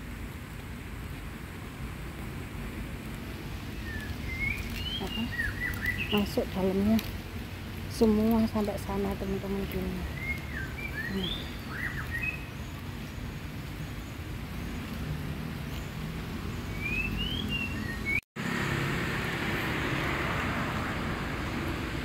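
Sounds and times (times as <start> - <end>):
road traffic rumble: 0.0 - 22.0
bird chirps: 3.8 - 6.5, 9.7 - 12.9, 16.5 - 18.2.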